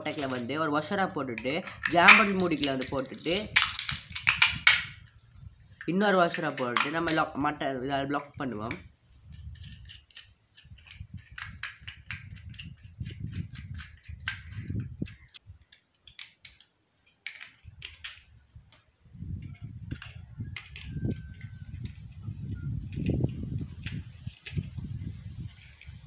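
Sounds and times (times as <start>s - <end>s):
small metallic clicks and clinks: 0.0s - 0.6s, 1.4s - 7.3s, 8.7s - 18.8s.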